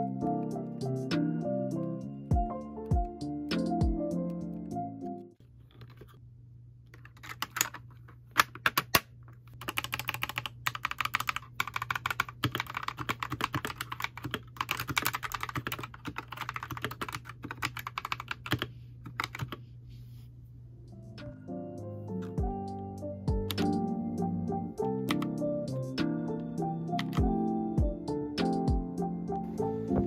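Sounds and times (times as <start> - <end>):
mechanical keyboard typing: 7.0 - 7.8, 8.4 - 19.6, 24.8 - 25.4, 26.9 - 27.3.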